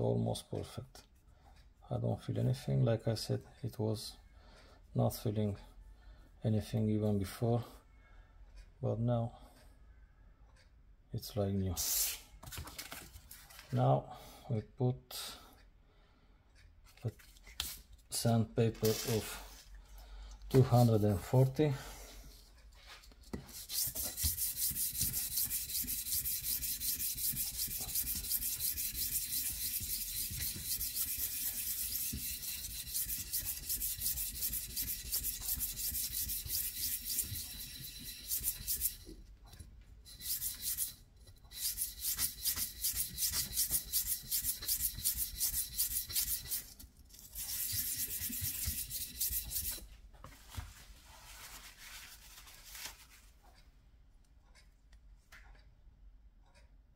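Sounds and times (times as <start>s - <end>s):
metal rasping on sandpaper: 18.8s - 19.5s, 23.0s - 39.2s, 40.1s - 49.9s.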